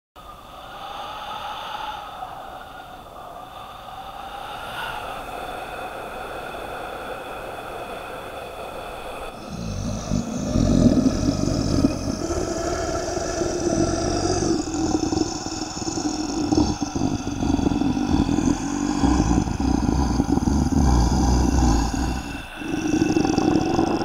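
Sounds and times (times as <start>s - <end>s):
low roaring rumble: 9.4s - 24.0s.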